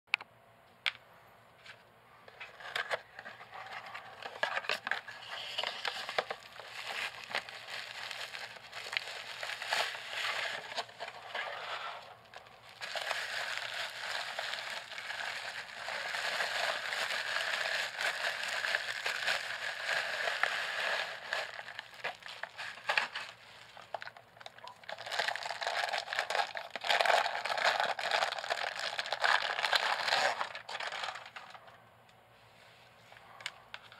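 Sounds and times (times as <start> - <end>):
bubble wrap and plastic crinkling: 2.3 - 31.7.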